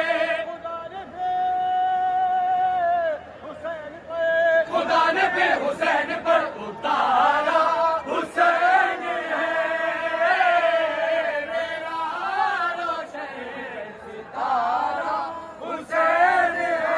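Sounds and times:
men chanting together: 0:04.5 - 0:16.9.

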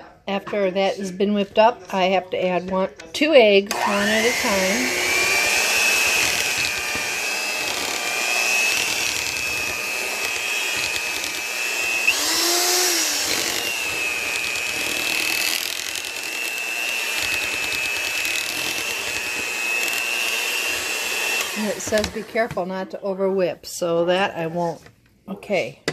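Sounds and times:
electric mixer whining: 0:03.7 - 0:22.6.

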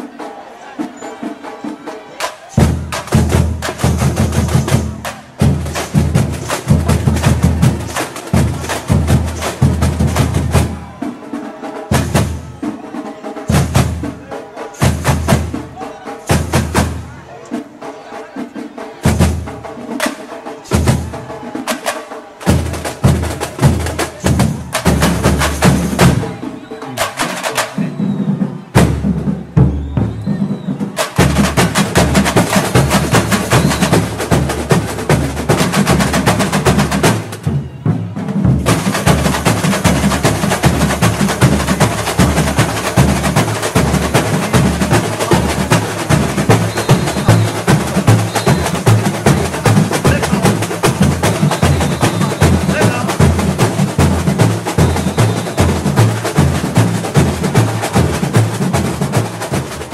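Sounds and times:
samba drum ensemble playing: 0:00.0 - 0:59.9
deep drum beats: 0:02.2 - 0:11.0, 0:11.9 - 0:12.8, 0:13.4 - 0:17.2, 0:19.0 - 0:21.8, 0:22.4 - 0:59.9.

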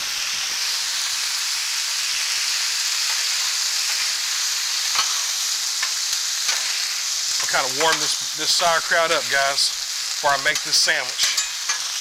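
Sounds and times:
food sizzling on a griddle: 0:00.0 - 0:12.0.

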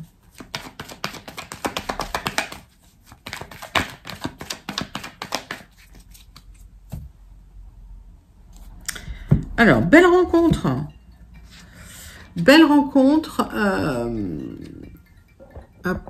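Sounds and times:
cards being shuffled: 0:00.3 - 0:07.0.

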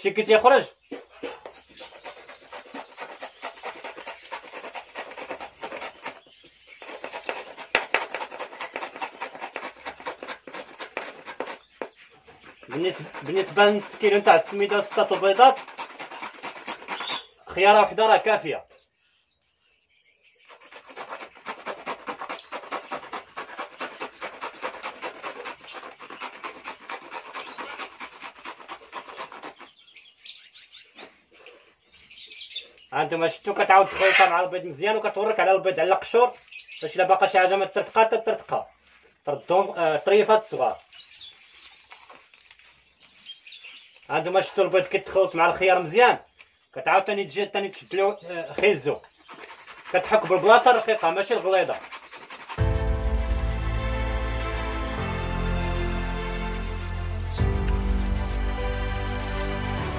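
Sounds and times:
vegetable grating on metal grater: 0:01.4 - 0:17.5, 0:20.5 - 0:29.9, 0:49.0 - 0:59.9.

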